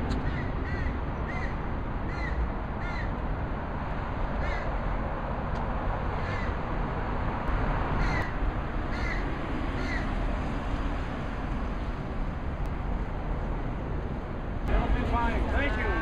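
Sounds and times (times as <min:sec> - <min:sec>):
crow cawing: 0:00.2 - 0:03.1, 0:04.4 - 0:04.8, 0:06.2 - 0:06.6, 0:08.0 - 0:08.3, 0:08.9 - 0:09.2, 0:09.8 - 0:10.0.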